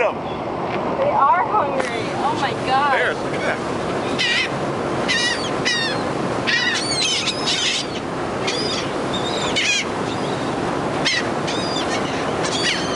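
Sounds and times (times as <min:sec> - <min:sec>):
boat wake churning: 0:00.0 - 0:12.9
seagulls calling: 0:04.0 - 0:12.9.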